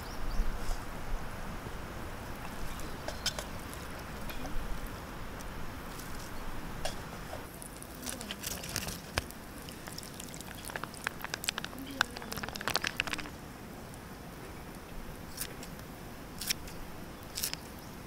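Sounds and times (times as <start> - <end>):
small clicks and taps: 10.6 - 13.3.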